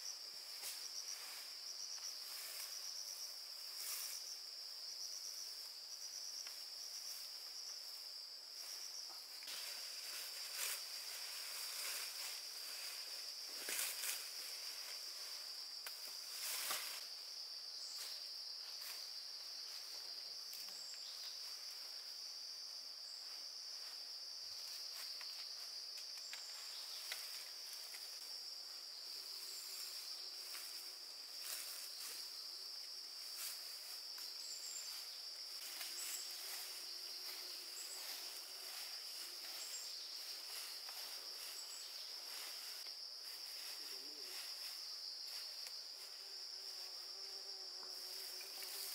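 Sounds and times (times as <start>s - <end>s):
high-pitched insect chorus: 0.0s - 48.9s.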